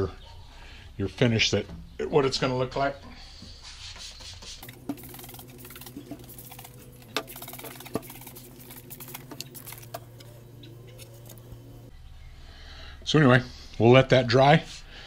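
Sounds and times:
spray bottle squirts: 0:03.6 - 0:11.5
steady low hum: 0:04.6 - 0:13.8.

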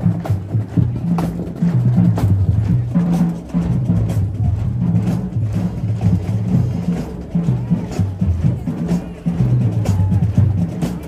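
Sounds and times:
drumline beat: 0:00.0 - 0:11.0.

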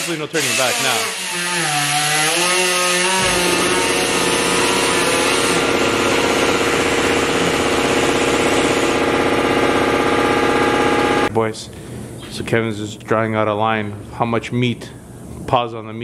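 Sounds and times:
power tool whining: 0:00.0 - 0:11.3.

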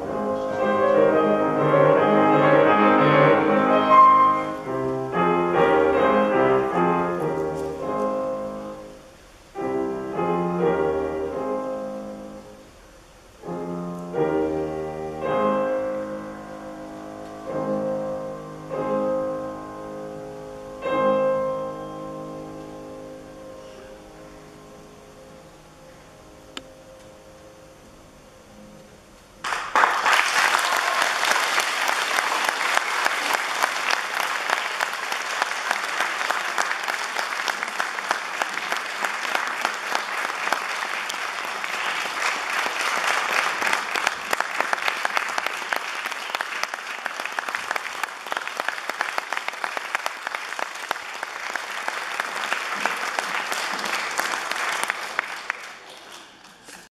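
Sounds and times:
audience applauding: 0:29.4 - 0:56.9.

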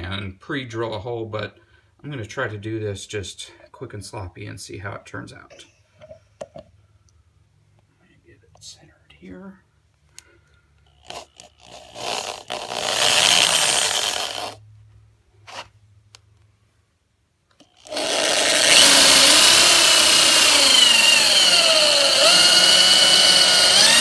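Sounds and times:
electric drill cutting plastic: 0:11.0 - 0:14.6, 0:17.6 - 0:24.0.

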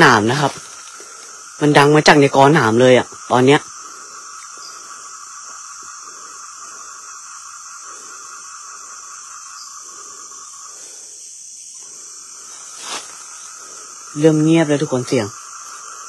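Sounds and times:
crickets trilling: 0:00.0 - 0:16.0.

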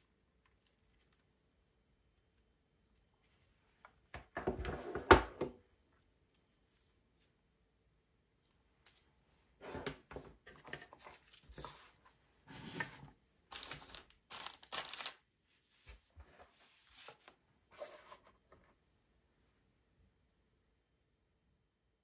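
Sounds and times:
packaging rustling and scraping: 0:10.4 - 0:15.2.

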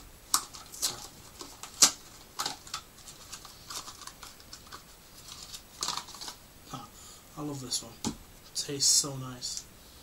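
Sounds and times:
cardboard box crinkling: 0:00.4 - 0:06.4.

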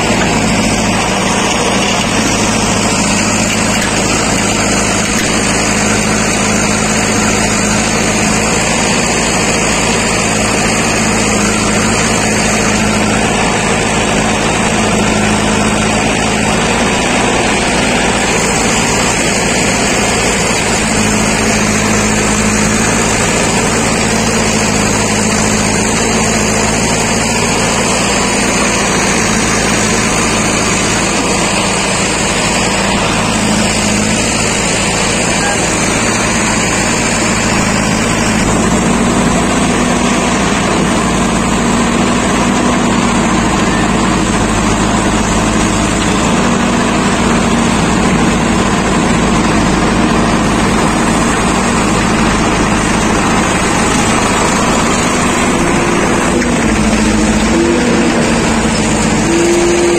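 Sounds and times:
diesel engines running: 0:00.0 - 0:59.9.

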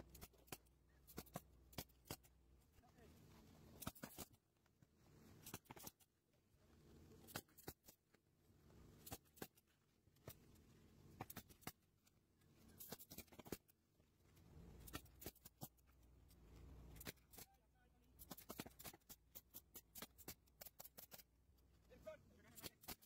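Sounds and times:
pneumatic nailer shots: 0:18.2 - 0:21.2, 0:22.6 - 0:23.0.

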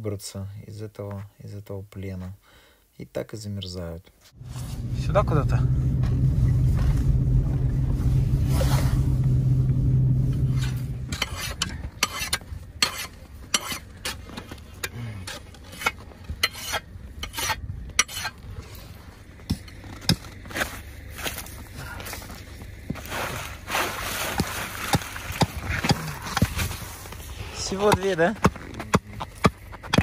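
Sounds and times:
car engine running: 0:04.4 - 0:12.8
footsteps crunching in snow: 0:20.3 - 0:25.8.

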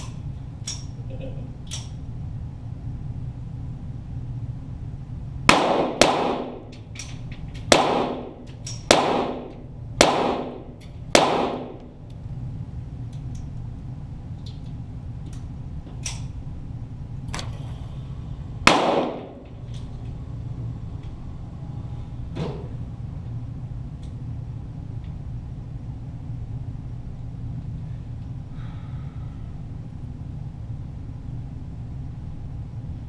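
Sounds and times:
pistol shots echoing: 0:05.5 - 0:06.7, 0:07.7 - 0:12.0, 0:18.6 - 0:19.6.

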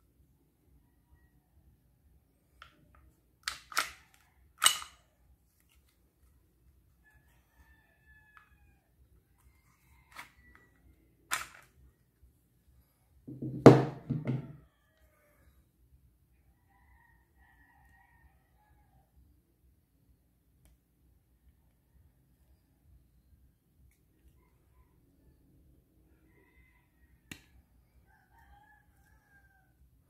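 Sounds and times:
airsoft pistol clacks: 0:03.4 - 0:05.0
pistol slide clatter: 0:03.4 - 0:05.0, 0:11.3 - 0:11.7.

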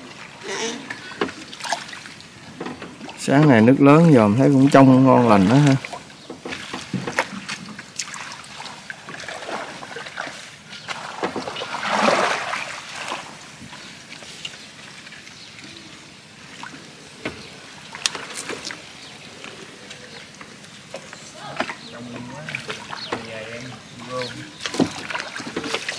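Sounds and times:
splashing and rustling: 0:00.0 - 0:25.9
water sloshing and dripping: 0:00.0 - 0:25.9
fishing line hauled through plants: 0:04.6 - 0:15.8, 0:16.6 - 0:25.9.

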